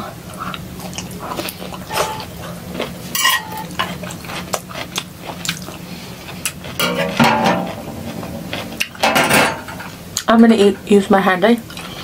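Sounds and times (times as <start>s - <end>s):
chewing vegetables: 0.0s - 6.8s, 11.5s - 12.0s
cutlery clinking on plate: 3.2s - 3.7s.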